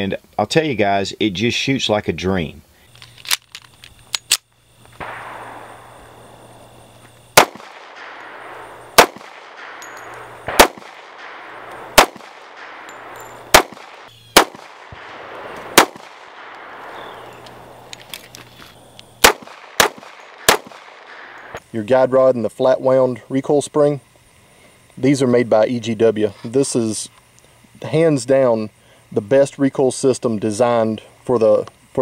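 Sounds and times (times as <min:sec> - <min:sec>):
pistol shots: 0:05.0 - 0:21.6.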